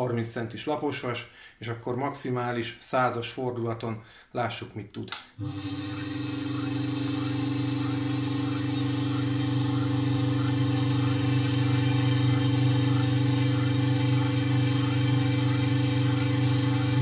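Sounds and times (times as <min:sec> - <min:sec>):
electric stirrer motor humming: 0:05.4 - 0:17.0.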